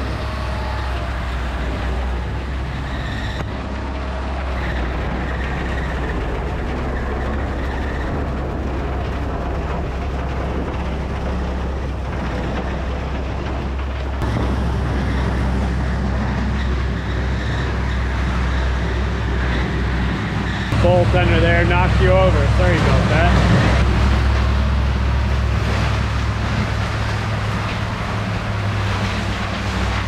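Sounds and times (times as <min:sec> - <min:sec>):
bale processor shredding hay: 0:00.0 - 0:30.0
low engine drone: 0:00.0 - 0:30.0.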